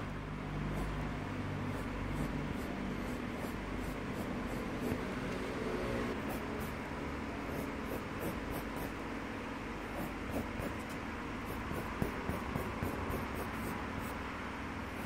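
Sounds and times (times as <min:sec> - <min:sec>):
low background hum: 0:00.0 - 0:15.0
pencil scratching on paper: 0:01.7 - 0:05.1, 0:06.2 - 0:06.8, 0:07.4 - 0:09.0, 0:09.9 - 0:14.2.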